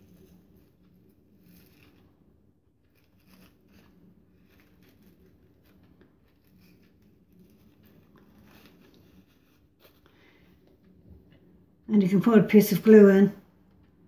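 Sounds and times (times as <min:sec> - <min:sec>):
low steady hum: 0:00.0 - 0:14.0
crepe paper rustling: 0:01.4 - 0:02.1, 0:02.8 - 0:10.4.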